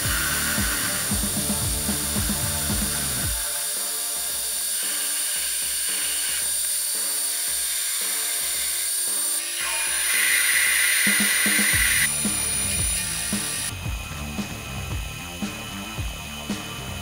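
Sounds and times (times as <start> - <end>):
background music: 0.0 - 17.0
drill cutting metal: 0.0 - 17.0
metal lathe high whine: 0.0 - 17.0.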